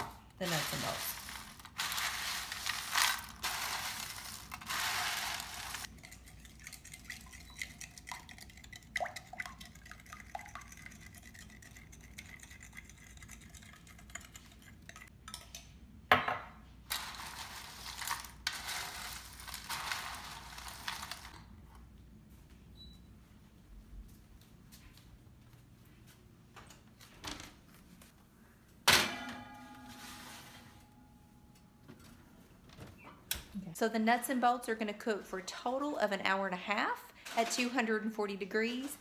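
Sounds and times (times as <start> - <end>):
snack mix rustling in metal pan: 0.4 - 5.9, 16.9 - 21.5.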